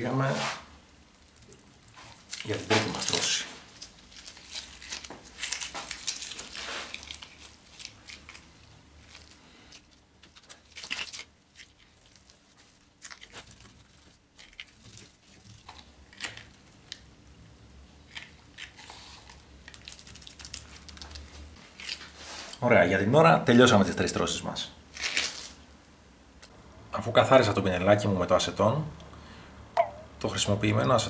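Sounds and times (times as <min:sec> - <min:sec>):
fibreglass mat crackling and rustling: 0:01.3 - 0:16.9.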